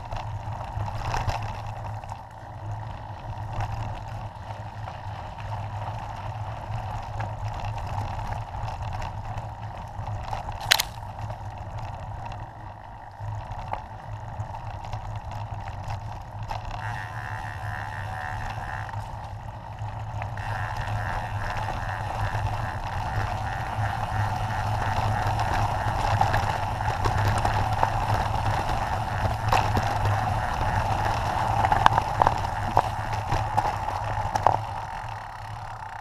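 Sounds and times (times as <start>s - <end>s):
bike knocks and rattles: 10.5s - 11.3s.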